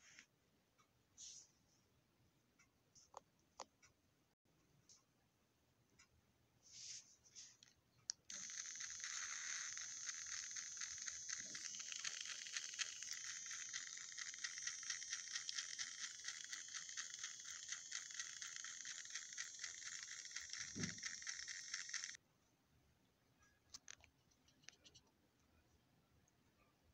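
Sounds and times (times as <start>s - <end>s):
toy train motor whirring: 8.3s - 22.2s.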